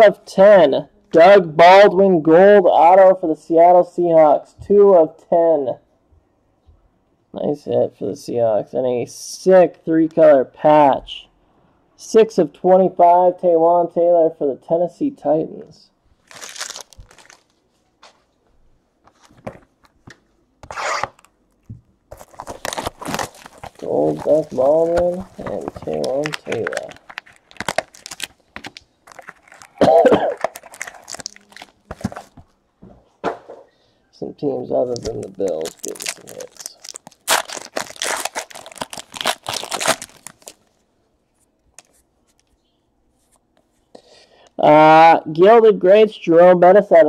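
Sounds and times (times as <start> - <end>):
plastic wrapper crinkling and tearing: 16.2 - 17.6, 20.6 - 32.4, 34.8 - 40.8, 41.7 - 42.5.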